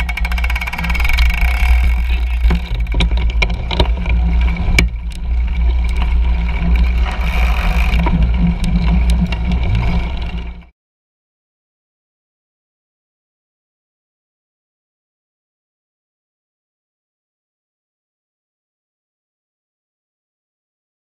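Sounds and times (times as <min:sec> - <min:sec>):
bike clicks and knocks: 0:00.0 - 0:10.7
wind and vibration rumble: 0:00.0 - 0:10.7.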